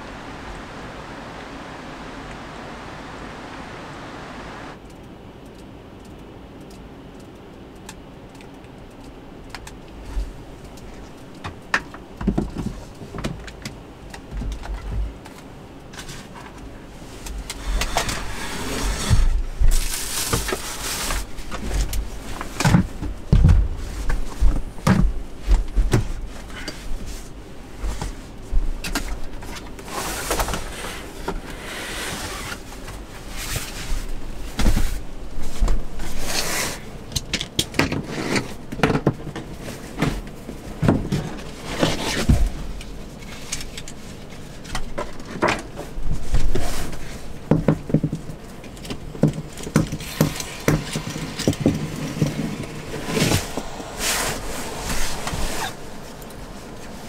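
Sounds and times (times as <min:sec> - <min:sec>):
rustling: 0:15.0 - 0:37.1, 0:39.4 - 0:57.0
handling knocks and clicks: 0:37.1 - 0:53.8.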